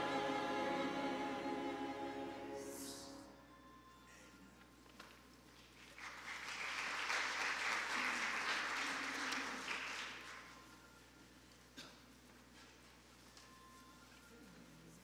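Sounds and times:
congregation applauding: 5.6s - 10.8s.

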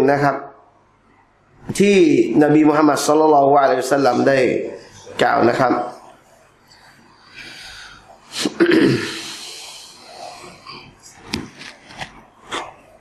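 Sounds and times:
sharp burst of breath through nose: 7.3s - 10.4s
man sniffing: 7.3s - 10.8s.

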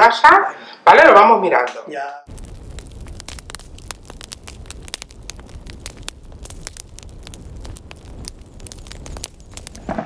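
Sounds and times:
low rumble: 2.3s - 9.8s
dense crackling clicks: 2.3s - 10.0s.

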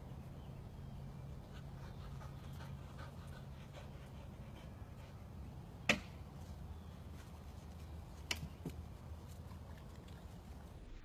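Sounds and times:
low steady hum: 0.0s - 11.0s
dog panting softly: 1.5s - 5.2s.

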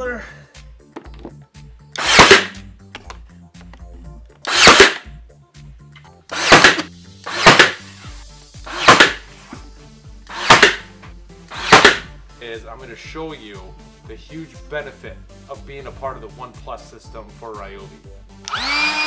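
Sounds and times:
brad nailer firing: 2.0s - 2.6s, 4.4s - 5.1s, 6.3s - 8.0s, 8.7s - 9.3s, 10.3s - 10.9s, 11.5s - 12.1s, 18.5s - 19.0s.

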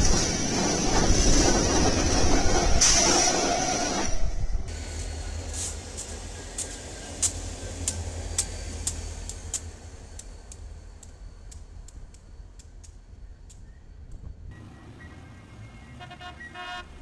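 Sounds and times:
diesel locomotives rumbling: 0.0s - 17.0s
sharp clicks: 6.6s - 14.2s.

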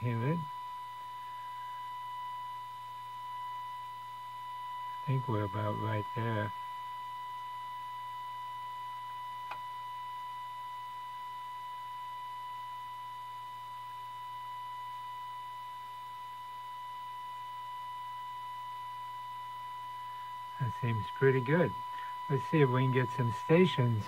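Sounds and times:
radio test tone: 4.5s - 8.3s, 19.5s - 24.0s.

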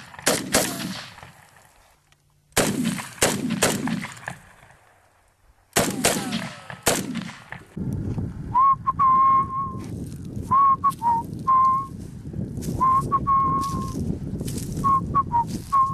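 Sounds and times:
gunshot: 0.0s - 1.4s, 2.6s - 4.7s, 5.8s - 7.7s
person whistling a tune: 8.5s - 9.9s, 10.5s - 12.0s, 12.8s - 14.0s, 14.8s - 15.9s.

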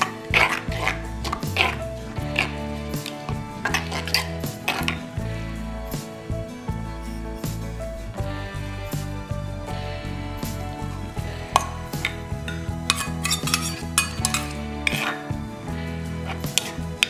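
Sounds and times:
metal spoon scraping bowl: 0.0s - 5.2s, 11.6s - 15.4s, 16.2s - 17.0s
background music: 0.0s - 17.0s.

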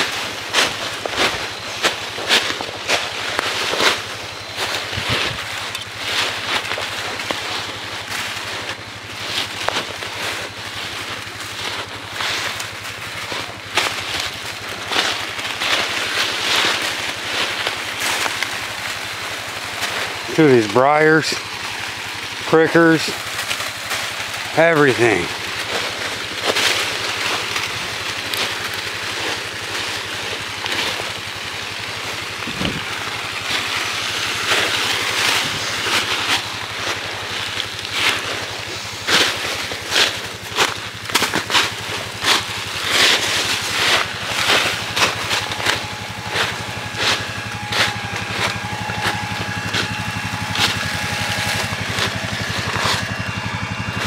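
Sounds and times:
brush scraping and rustling: 0.0s - 54.0s
footsteps crunching dry leaves: 0.0s - 54.0s
four-wheeler engine idling: 0.0s - 54.0s
twigs snapping: 25.4s - 54.0s.

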